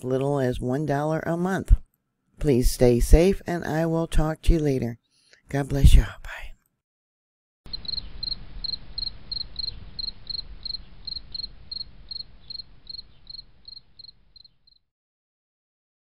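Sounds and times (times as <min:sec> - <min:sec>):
low rumbling hiss: 0:07.7 - 0:14.4
cricket chirping: 0:07.7 - 0:14.8.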